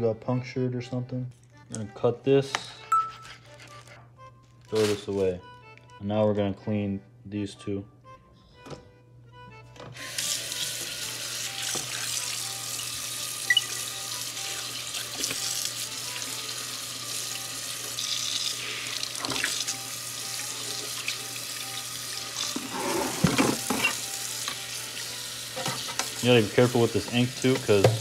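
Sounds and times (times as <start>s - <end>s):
tap water running into sink: 10.1s - 28.0s.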